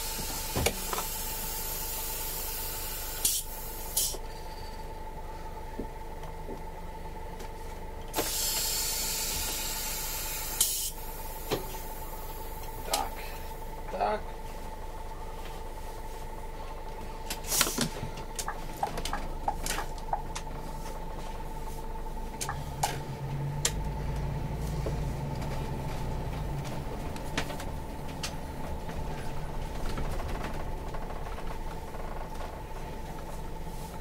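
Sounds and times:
bus engine hum: 0.0 - 34.0
cab interior clicks and creaks: 25.2 - 33.4.

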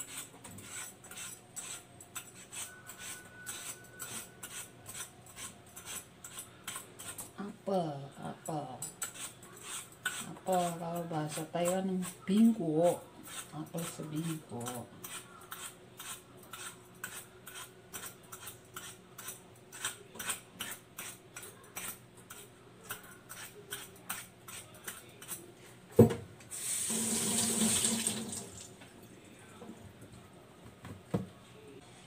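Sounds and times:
knife peeling an apple: 0.0 - 7.3, 9.0 - 25.5
kitchen tap running: 26.5 - 28.8.

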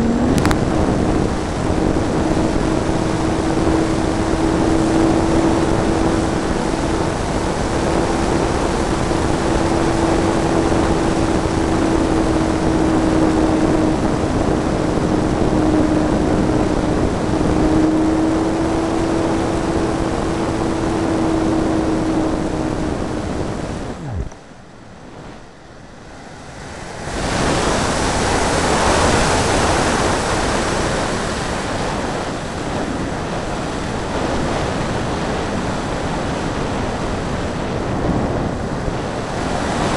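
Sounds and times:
electric motor whine: 0.0 - 24.5
wind rushing over model plane: 0.0 - 39.9.

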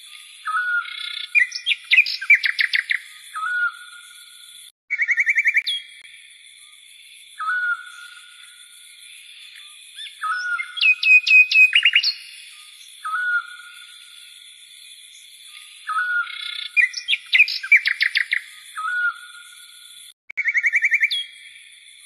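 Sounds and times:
bird-like chirping: 0.0 - 6.3, 7.4 - 22.0.

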